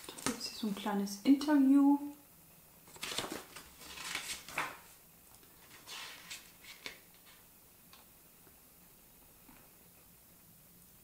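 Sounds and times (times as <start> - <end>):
paper pages rustling: 0.0 - 0.4, 2.9 - 7.4.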